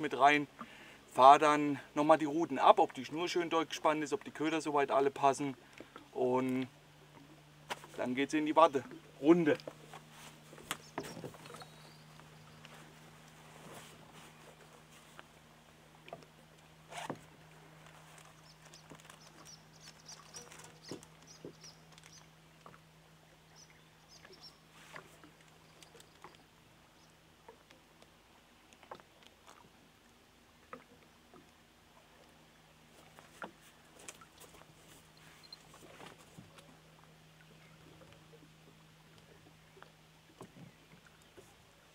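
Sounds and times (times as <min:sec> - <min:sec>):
low hum: 0:05.6 - 0:41.9
faint high chirps: 0:10.8 - 0:12.6, 0:35.2 - 0:35.7.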